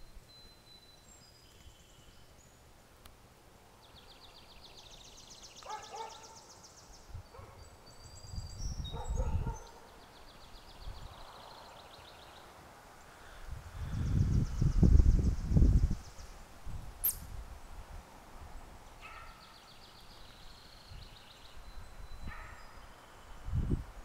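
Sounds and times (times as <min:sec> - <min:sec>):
songbirds singing: 0:00.0 - 0:17.7, 0:18.3 - 0:24.0
low rumble on microphone: 0:13.5 - 0:17.8.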